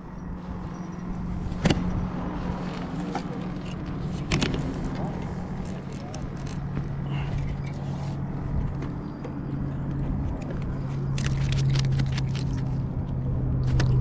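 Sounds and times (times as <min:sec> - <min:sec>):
rumbling background: 0:00.0 - 0:14.0
clicks and scrapes of fishing line: 0:10.4 - 0:12.9.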